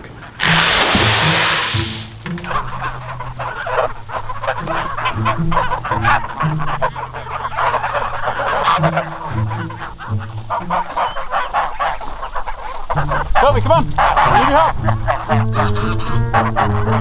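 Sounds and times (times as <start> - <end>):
geese honking: 0.0 - 17.0
background music: 0.1 - 17.0.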